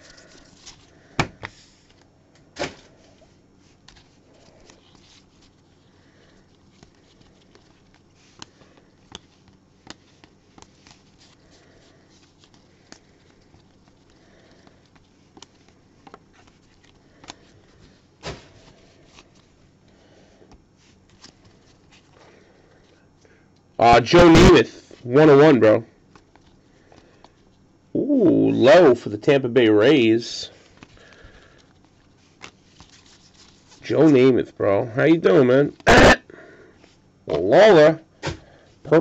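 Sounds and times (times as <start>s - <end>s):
cards clicking and tapping: 6.5s - 19.5s.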